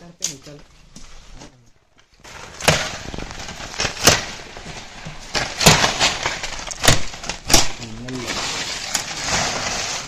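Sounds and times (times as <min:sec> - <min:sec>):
leaves and branches rustling: 0:00.0 - 0:10.0
blade chopping sapling: 0:03.8 - 0:04.4, 0:05.4 - 0:07.8.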